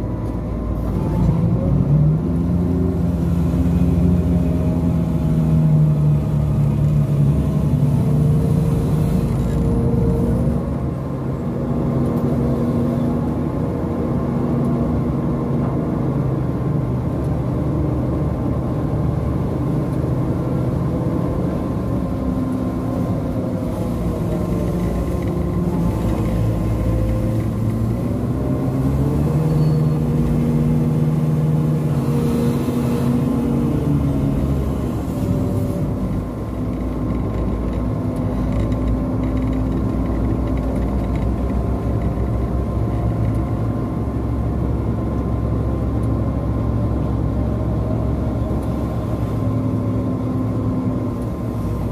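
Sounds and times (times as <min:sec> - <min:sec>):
crane diesel engine running: 0:00.0 - 0:38.4.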